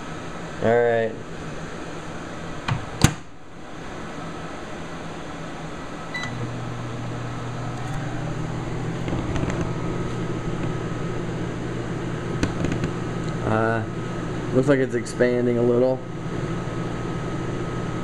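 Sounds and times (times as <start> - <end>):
microwave oven humming: 0.0 - 18.0
microwave oven click: 6.1 - 6.5.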